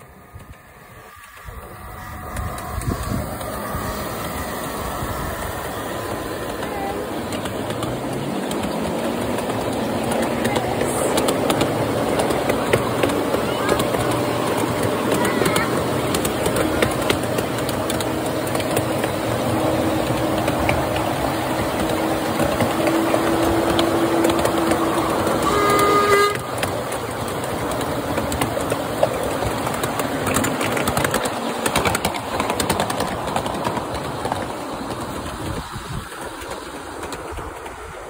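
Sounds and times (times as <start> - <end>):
train wheels rumbling on rails: 0.0 - 38.0
train horn toot: 23.4 - 26.7.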